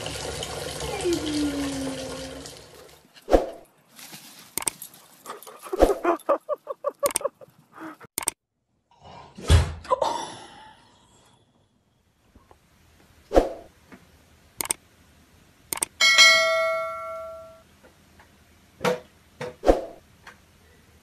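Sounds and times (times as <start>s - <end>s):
dog yapping: 5.3s - 6.4s.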